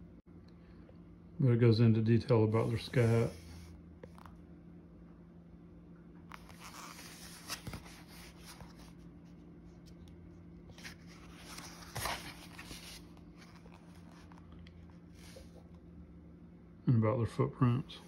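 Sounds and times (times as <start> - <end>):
low steady hum: 0.0 - 18.0
paper rustling: 6.3 - 15.6
book pages turning: 6.3 - 15.8.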